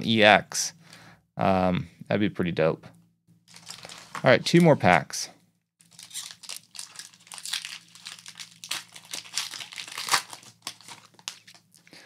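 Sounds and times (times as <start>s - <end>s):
foil wrapper crinkling and tearing: 3.5s - 4.2s, 5.8s - 11.8s.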